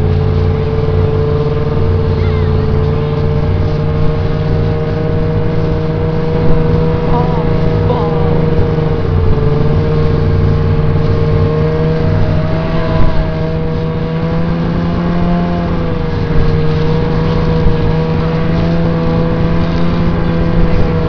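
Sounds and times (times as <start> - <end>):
snowmobile engine running: 0.0 - 21.0.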